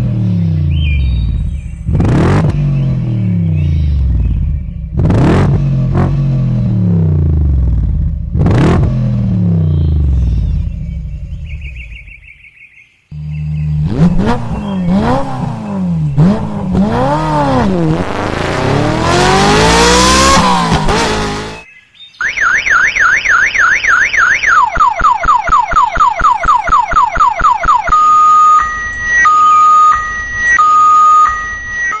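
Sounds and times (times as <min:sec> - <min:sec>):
motor revving: 0:13.2 - 0:21.6
police siren: 0:22.2 - 0:32.0.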